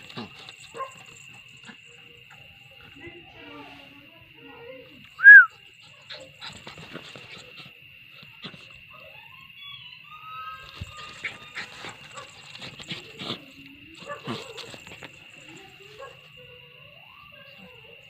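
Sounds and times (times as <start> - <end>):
dog whining: 5.2 - 6.7.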